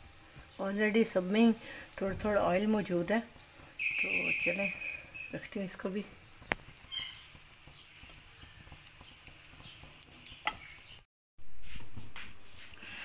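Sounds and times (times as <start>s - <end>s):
charcoal sizzling and crackling: 0.0s - 13.0s
metal skewer clicking on pan: 7.7s - 10.7s.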